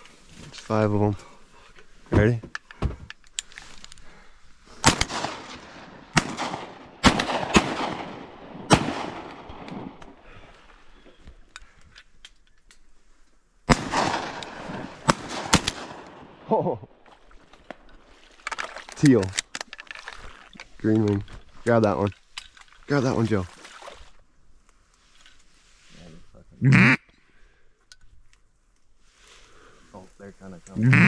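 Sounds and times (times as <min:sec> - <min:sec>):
shotgun shots echoing: 0:04.8 - 0:10.2, 0:13.7 - 0:16.5.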